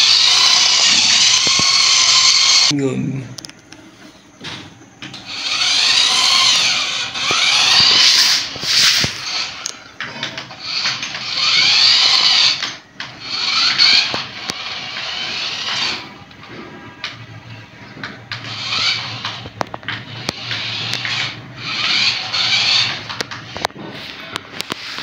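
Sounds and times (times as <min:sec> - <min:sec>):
toy car electric motor whining: 0:00.0 - 0:02.7, 0:05.1 - 0:17.2, 0:18.0 - 0:23.8.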